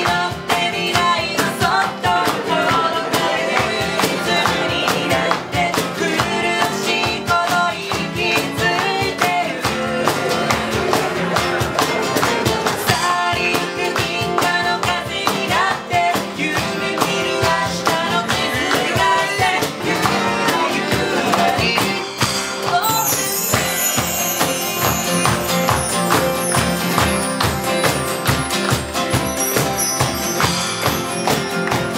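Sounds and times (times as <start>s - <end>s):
woman singing: 0.0s - 11.2s, 11.8s - 25.4s
hand percussion: 0.0s - 31.9s
strummed acoustic guitar: 0.0s - 31.9s
mark tree chimes: 22.8s - 31.9s.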